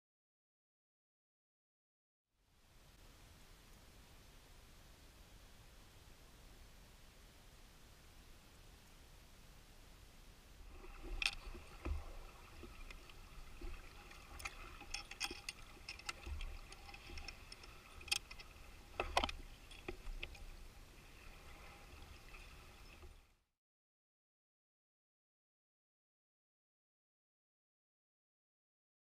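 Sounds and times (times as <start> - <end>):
faint steady hum: 2.4 - 23.4
low rumble of water: 2.4 - 23.5
underwater clicks and knocks: 10.7 - 20.6.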